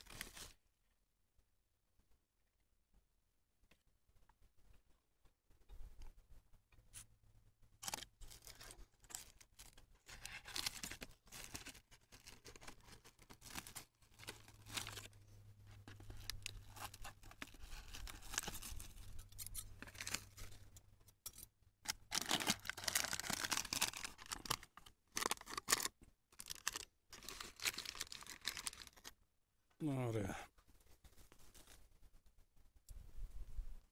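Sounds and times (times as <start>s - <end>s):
plastic bags crinkling: 7.8s - 20.6s, 21.9s - 29.1s.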